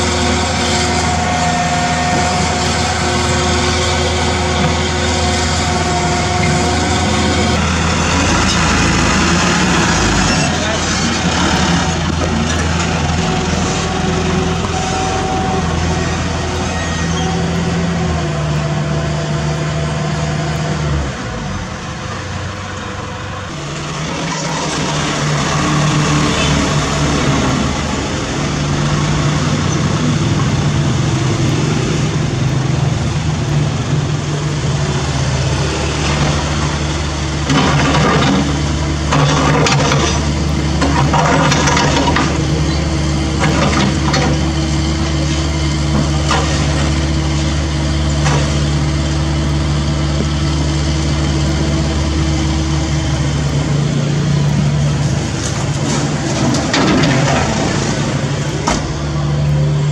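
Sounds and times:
diesel engines running: 0.0s - 59.9s
debris clattering into steel truck bed: 37.4s - 42.8s, 55.4s - 58.9s.

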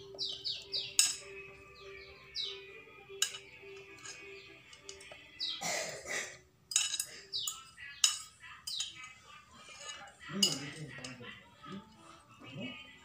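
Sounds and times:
bird chirps: 0.0s - 2.8s, 7.1s - 9.0s
metal spoon scraping a plate: 3.2s - 5.2s, 6.7s - 12.0s.

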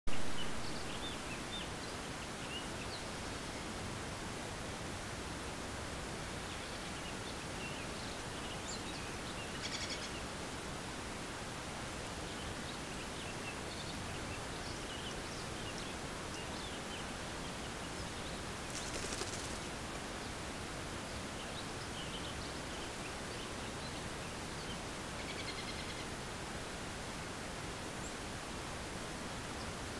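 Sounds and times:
microphone hiss: 0.1s - 29.9s
faint bird chirps: 6.4s - 10.3s, 12.3s - 19.7s, 21.1s - 26.1s.

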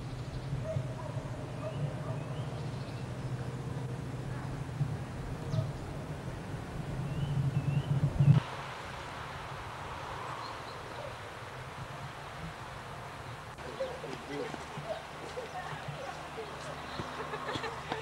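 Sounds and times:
low rumble: 0.0s - 8.4s.

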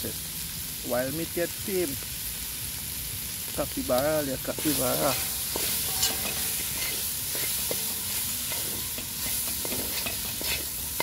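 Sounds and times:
gas burner hiss: 0.0s - 11.0s
meat sizzling in a pot: 0.0s - 11.0s
spoon scraping a pot: 4.6s - 11.0s.

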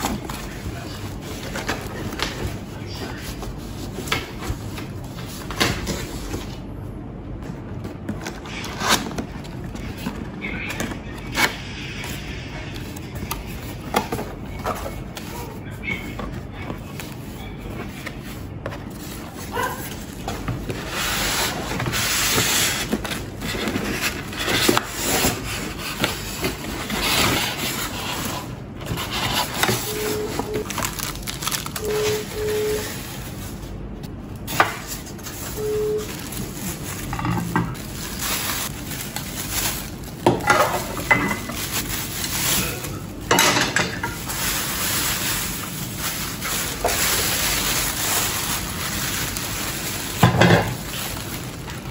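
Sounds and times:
plastic wrapping crinkling: 12.8s - 43.3s, 43.9s - 51.9s.

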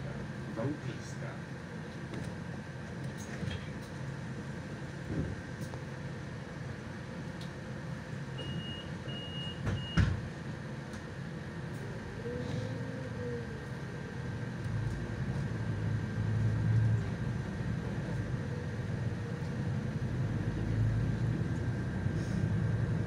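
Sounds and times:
bus running hum: 0.0s - 23.0s
bus doors shutting: 8.3s - 10.3s
door warning beeps: 8.4s - 10.1s.

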